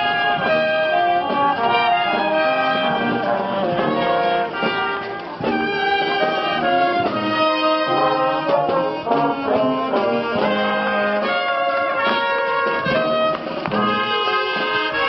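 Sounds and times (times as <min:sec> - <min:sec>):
brass band playing: 0:00.0 - 0:15.0.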